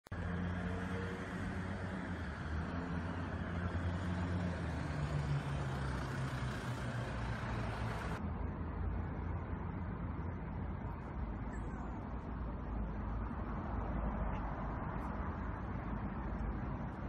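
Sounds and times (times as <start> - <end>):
vehicle engine rumbling: 0.1 - 17.0
traffic hiss: 0.2 - 8.2.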